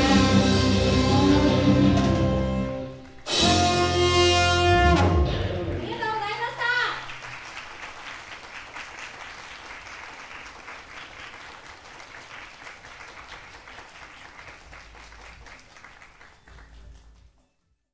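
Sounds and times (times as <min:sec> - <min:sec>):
audience applauding: 0:05.8 - 0:17.4.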